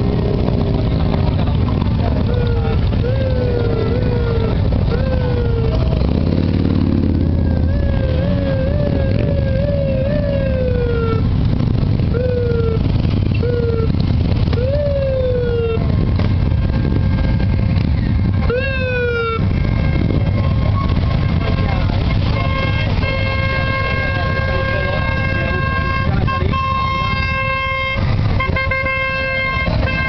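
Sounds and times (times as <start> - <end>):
motorcycles rumbling past: 0.0 - 30.0
siren whoops: 2.3 - 6.0, 7.2 - 11.3, 12.1 - 16.1, 18.4 - 21.1.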